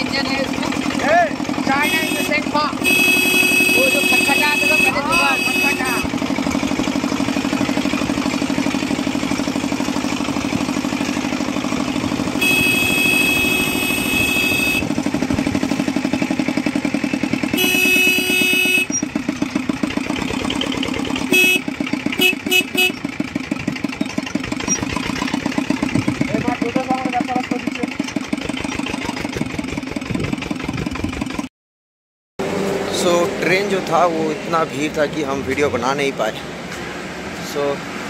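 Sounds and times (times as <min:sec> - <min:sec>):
van engine chugging: 0:00.0 - 0:31.5
vehicle horn blaring and beeping: 0:01.7 - 0:06.2, 0:12.3 - 0:15.0, 0:17.5 - 0:19.1, 0:21.2 - 0:23.2.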